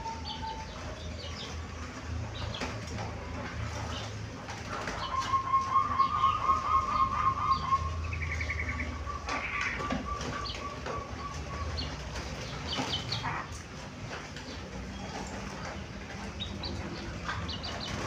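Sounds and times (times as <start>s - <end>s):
dove cooing with trills: 0.0s - 13.6s.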